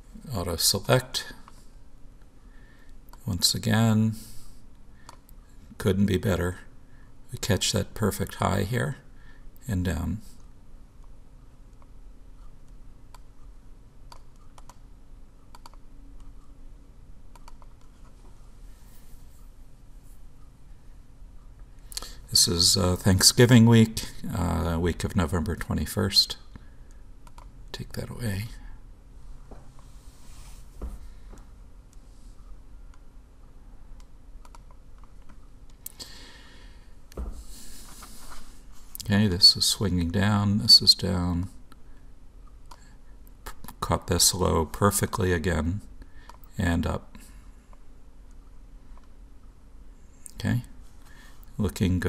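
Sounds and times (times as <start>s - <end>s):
steady low hum: 0.0s - 52.0s
computer keyboard and mouse clicks: 14.1s - 14.8s, 15.5s - 16.3s, 17.3s - 18.0s, 27.2s - 27.5s, 34.0s - 35.9s
mouse and keyboard clicks: 15.5s - 16.3s, 17.3s - 17.9s.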